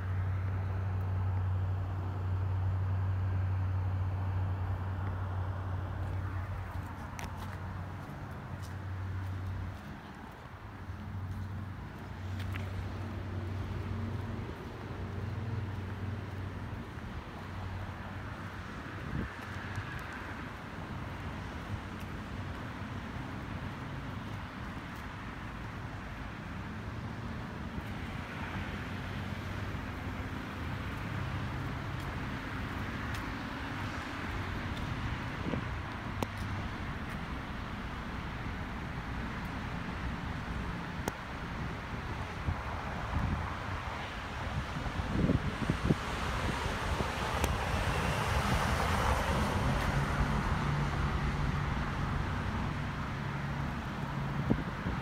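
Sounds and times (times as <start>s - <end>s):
low engine hum: 0.0s - 55.0s
road and tyre noise: 0.0s - 55.0s
vehicle passing: 2.1s - 24.0s, 45.8s - 54.6s
wind on microphone: 35.0s - 36.1s, 41.8s - 51.4s, 54.4s - 55.0s.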